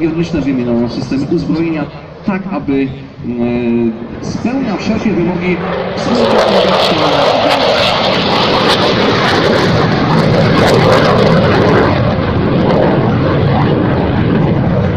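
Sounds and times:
jet engine flying past: 0:00.0 - 0:14.9.

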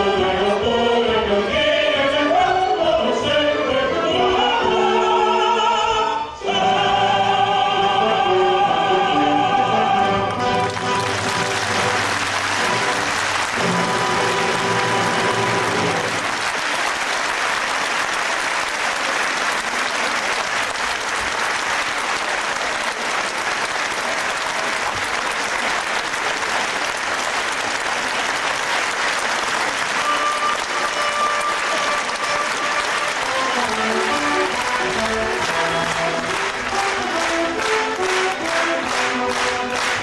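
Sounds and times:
orchestra playing: 0:00.0 - 0:17.1, 0:29.4 - 0:40.0
audience applauding: 0:10.4 - 0:40.0.

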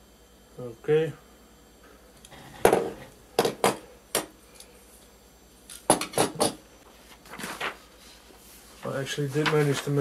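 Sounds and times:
paper rustle: 0:07.0 - 0:10.0.

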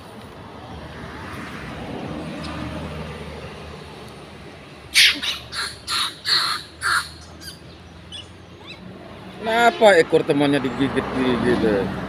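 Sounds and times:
monkey screeching: 0:04.9 - 0:08.9.

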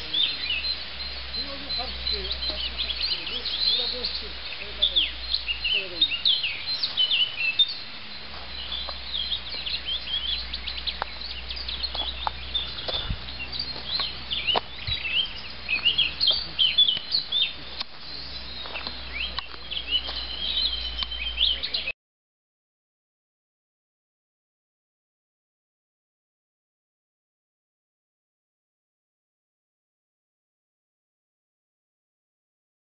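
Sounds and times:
songbirds chirping: 0:00.0 - 0:22.0.

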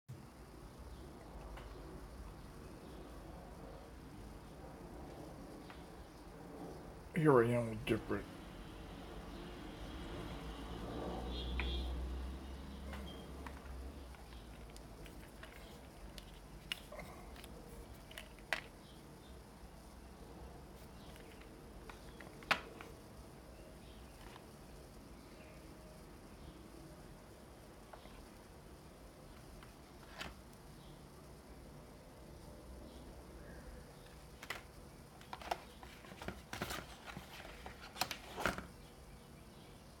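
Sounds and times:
paper packaging rustling: 0:12.9 - 0:18.8, 0:34.4 - 0:38.7.

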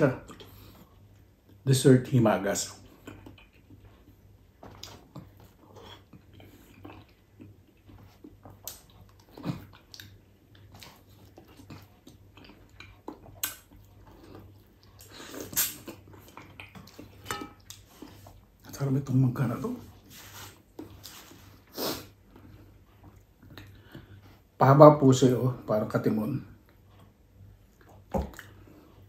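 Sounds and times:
person chewing mango: 0:02.8 - 0:18.8, 0:20.0 - 0:24.5.

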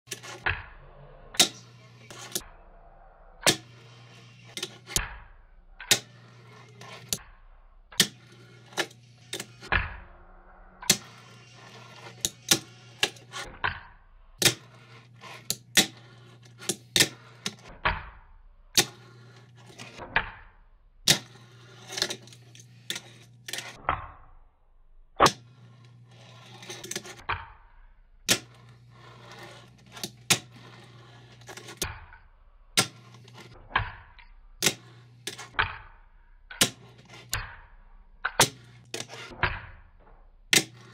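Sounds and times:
small wheels rolling on desk: 0:00.1 - 0:00.5, 0:03.5 - 0:05.0, 0:05.9 - 0:07.2, 0:08.0 - 0:09.7, 0:10.9 - 0:13.5, 0:14.4 - 0:17.7, 0:18.8 - 0:20.0, 0:21.1 - 0:23.7, 0:25.4 - 0:27.2, 0:28.4 - 0:31.9, 0:32.8 - 0:33.6, 0:34.6 - 0:35.6, 0:38.4 - 0:39.3, 0:40.6 - 0:40.9.

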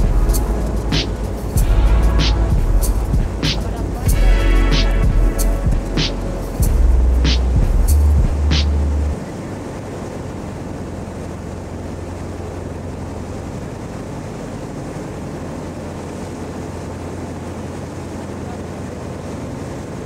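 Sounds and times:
music track: 0:00.0 - 0:09.2
boat engine hum: 0:00.0 - 0:20.0
wind and water noise: 0:00.0 - 0:20.0.

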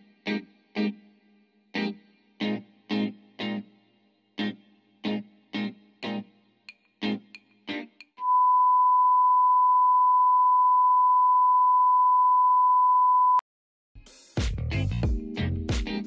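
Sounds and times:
plucked guitar notes: 0:04.4 - 0:08.2
electronic beep: 0:08.2 - 0:13.4.

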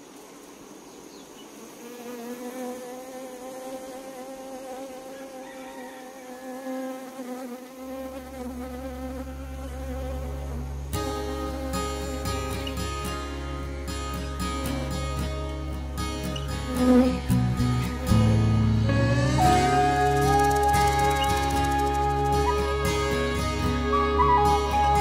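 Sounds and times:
honeybee buzzing: 0:01.4 - 0:25.0
strummed guitar music: 0:10.9 - 0:25.0
deep steady drone: 0:17.3 - 0:25.0.

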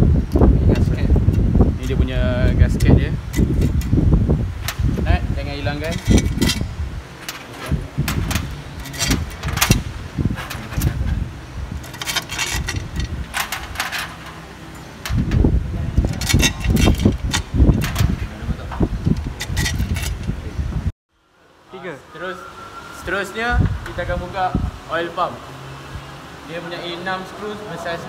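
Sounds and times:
heavy knocks and rumbling handling: 0:00.0 - 0:20.9
metal bolts clinking on metal: 0:05.8 - 0:09.8, 0:11.8 - 0:15.3.

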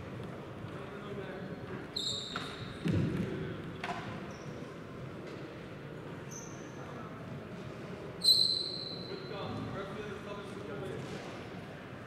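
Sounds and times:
sports hall crowd hubbub: 0:00.0 - 0:12.0
sneakers squeaking on wooden floor: 0:01.5 - 0:02.9, 0:06.3 - 0:06.8.

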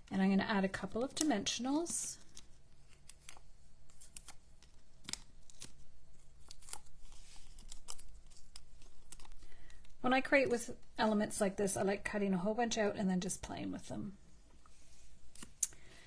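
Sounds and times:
paper rustling: 0:01.5 - 0:10.0.

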